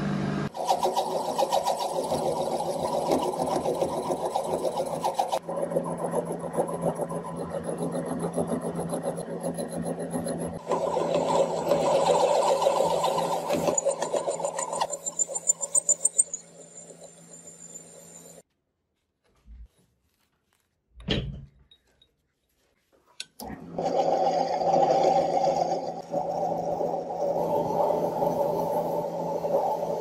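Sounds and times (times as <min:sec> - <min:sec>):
lathe motor humming: 0:00.4 - 0:18.4, 0:23.4 - 0:30.0
cutting tool scraping metal: 0:00.6 - 0:16.3.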